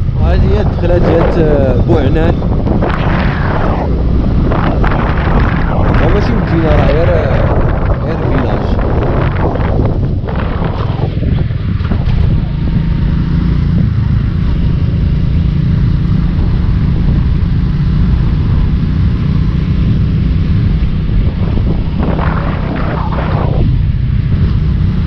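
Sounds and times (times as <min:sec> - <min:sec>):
wind noise: 0:00.0 - 0:25.0
motorcycle engine running: 0:08.8 - 0:25.0.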